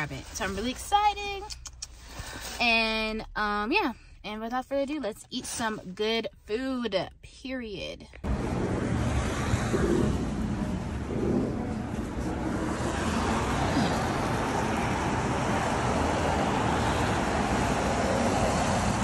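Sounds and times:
car road noise: 8.1s - 19.0s.

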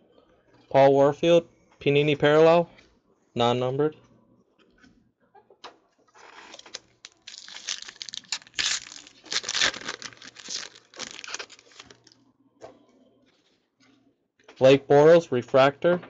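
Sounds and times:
foil wrapper crinkling and tearing: 6.2s - 12.2s.

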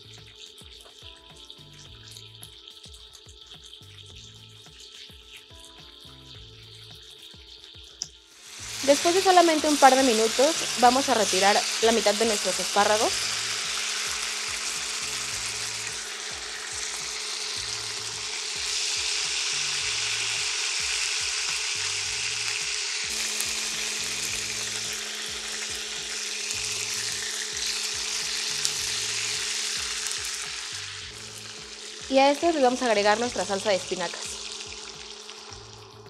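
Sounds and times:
asparagus sizzling in oil: 0.0s - 36.0s.

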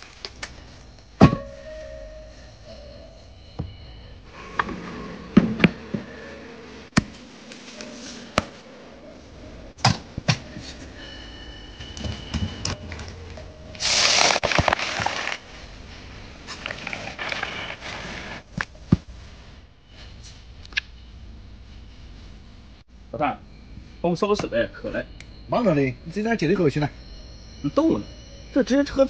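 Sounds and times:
loud hiss: 13.8s - 14.5s.

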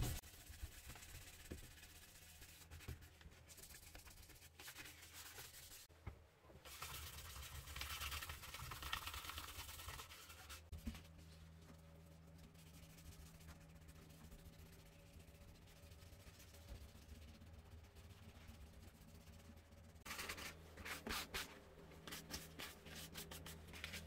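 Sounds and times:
faint low hum: 5.9s - 24.0s.

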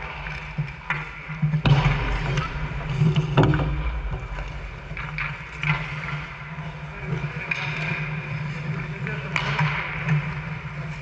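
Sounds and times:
hockey sticks clattering: 0.0s - 3.6s, 4.4s - 11.0s
sharp knock: 1.6s - 5.4s
steady low hum: 1.6s - 7.0s.

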